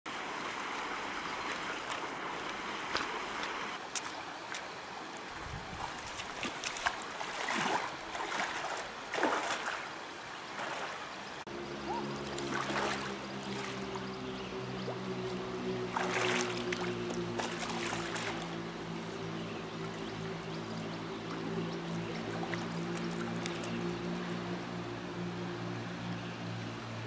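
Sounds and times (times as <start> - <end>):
shallow river water running: 0.1 - 27.0
feet wading splashes: 0.3 - 24.8.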